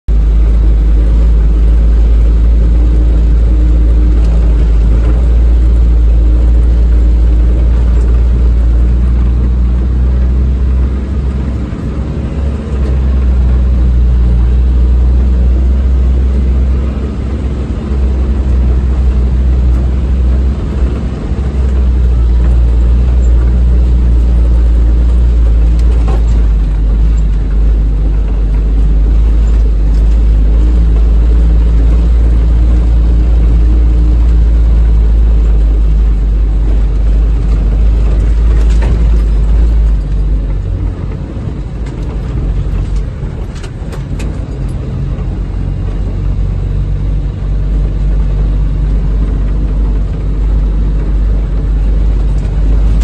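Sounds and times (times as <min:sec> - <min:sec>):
van engine droning inside cab: 0:00.0 - 0:53.0.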